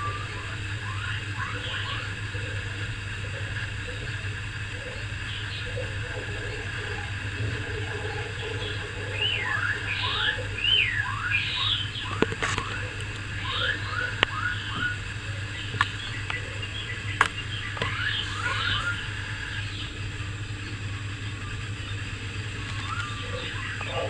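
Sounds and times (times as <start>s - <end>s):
steady low hum: 0.0s - 24.0s
high falling chirps: 5.0s - 19.9s.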